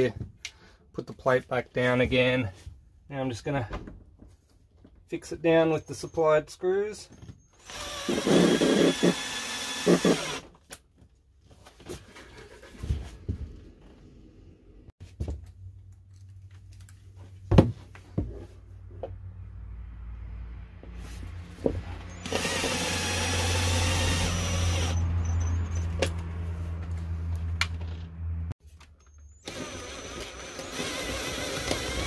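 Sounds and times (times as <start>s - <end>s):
cordless drill whirring: 7.6s - 10.4s, 22.1s - 25.0s, 29.4s - 32.0s.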